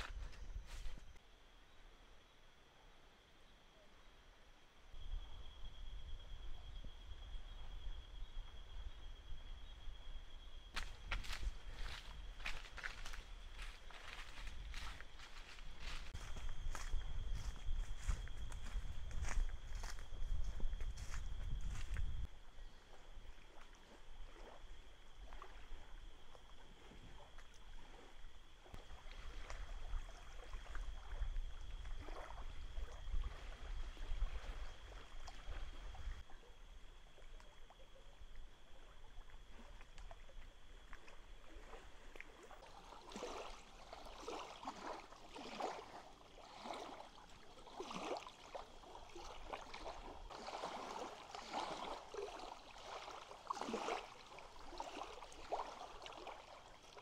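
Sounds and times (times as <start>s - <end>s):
small waves lapping on shore: 10.8s - 16.2s, 22.8s - 36.3s, 38.5s - 57.0s.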